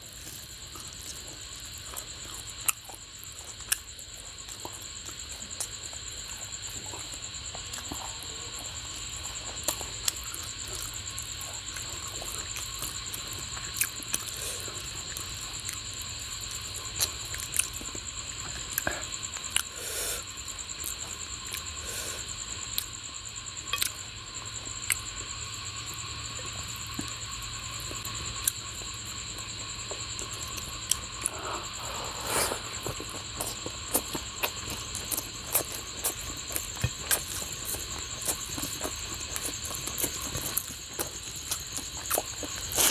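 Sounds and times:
chewing: 0.1s - 23.0s, 23.7s - 24.0s, 24.6s - 42.9s
high-pitched insect chirring: 15.0s - 42.9s.

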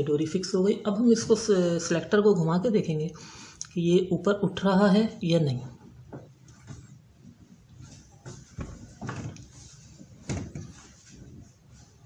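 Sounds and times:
washing machine drain plastic knocks: 10.3s - 10.7s.

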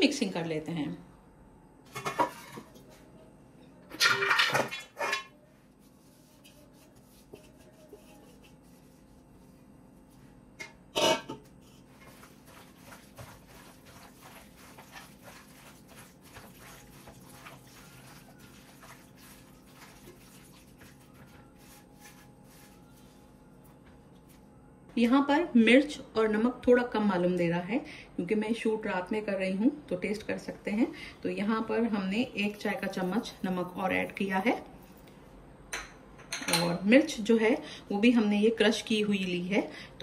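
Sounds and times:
metal bowls scraping and clanking: 1.9s - 3.0s, 3.9s - 5.4s, 10.6s - 23.2s
wet squishes of hand mixing: 11.7s - 23.4s.

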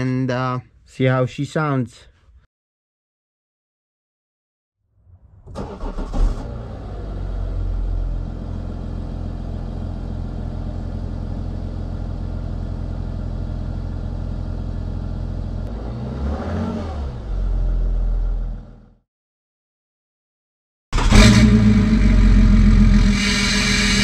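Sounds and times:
diesel engine starting and idling: 5.3s - 19.0s, 21.0s - 24.0s
engine revving: 5.5s - 8.6s, 15.6s - 19.0s, 21.0s - 24.0s.

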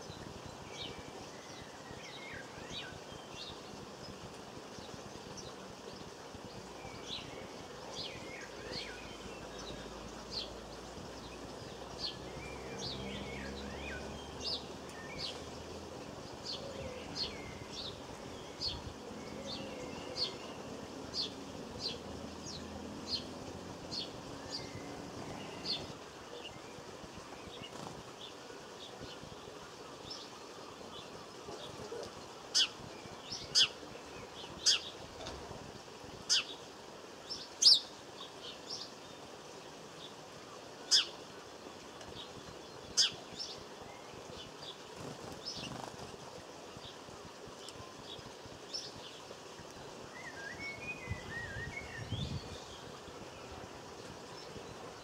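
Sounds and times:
small songbirds chipping: 0.0s - 55.0s
soft bird twittering: 29.8s - 35.0s.

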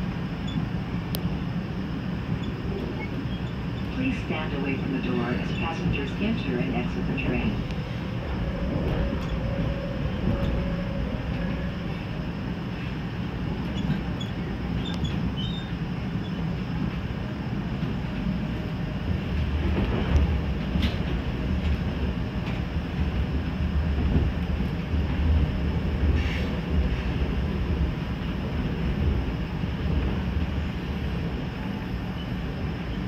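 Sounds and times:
low rumble of trains: 0.0s - 33.0s.

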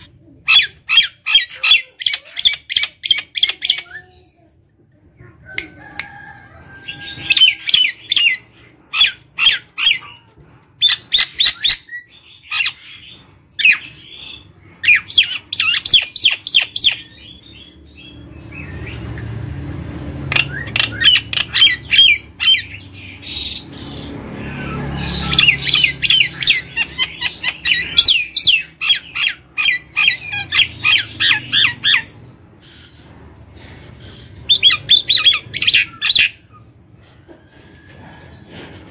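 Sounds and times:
myna bird chattering and whistling: 7.0s - 19.2s, 20.3s - 37.2s.

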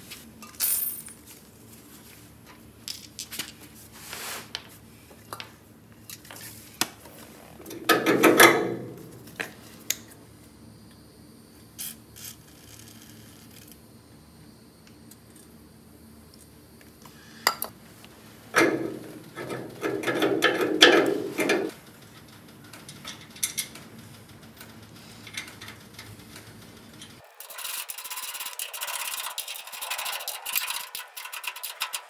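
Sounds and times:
thin hiss with rapid ticks: 11.8s - 13.6s, 24.1s - 32.0s
metal parts scraping on steel: 25.0s - 32.0s.

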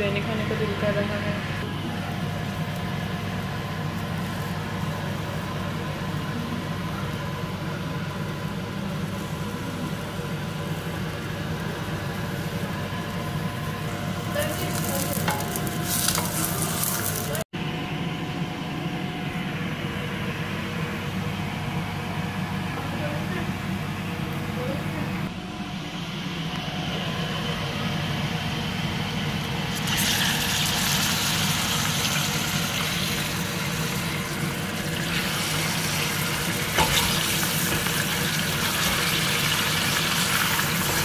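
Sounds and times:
onions sizzling in oil: 1.7s - 17.5s, 29.7s - 41.0s.

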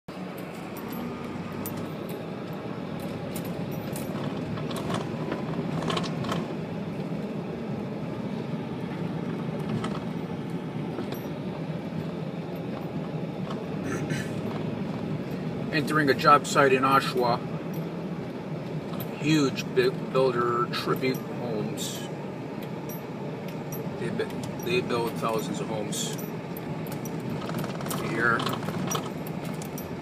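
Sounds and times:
car road and engine noise: 0.0s - 30.0s
small clicks and rattles: 3.0s - 6.6s, 26.1s - 30.0s.

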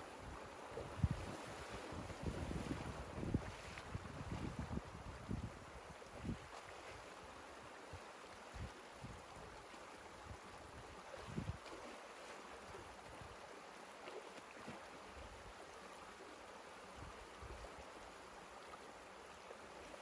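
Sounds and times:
water rushing and splashing: 0.0s - 20.0s
wind on microphone: 0.2s - 6.6s, 10.2s - 11.8s.

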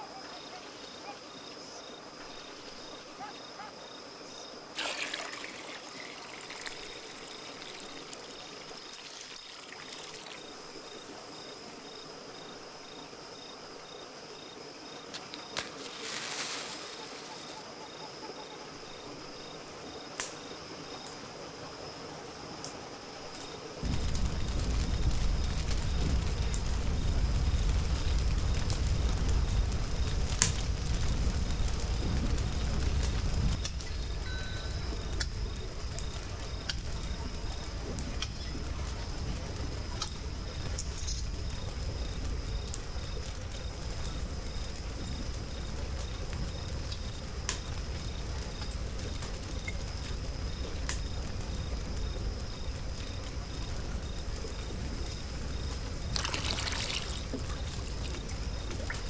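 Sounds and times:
wood fire crackling and popping: 4.7s - 59.0s
low rumble: 23.8s - 55.1s.

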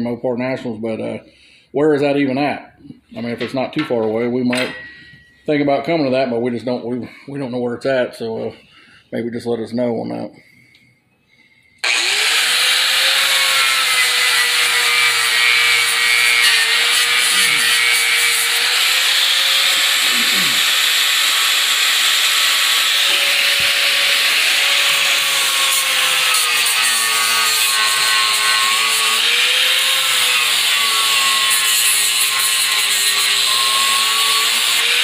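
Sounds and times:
angle grinder grinding metal: 11.8s - 35.0s.

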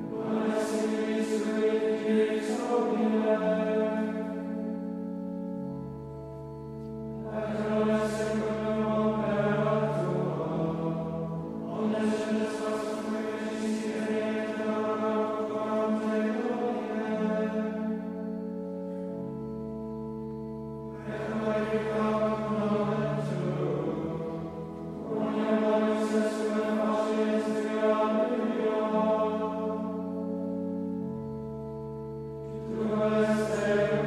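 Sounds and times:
organ holding chords: 0.0s - 34.0s
men's choir chanting: 0.1s - 4.1s, 7.3s - 10.9s, 11.7s - 17.7s, 21.0s - 29.8s, 32.6s - 34.0s.

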